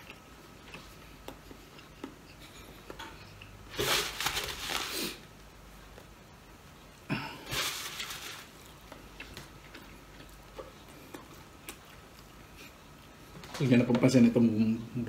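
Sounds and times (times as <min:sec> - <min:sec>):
fingers and food clicking on plate: 0:00.0 - 0:03.6
person chewing: 0:00.0 - 0:06.2, 0:07.4 - 0:13.3.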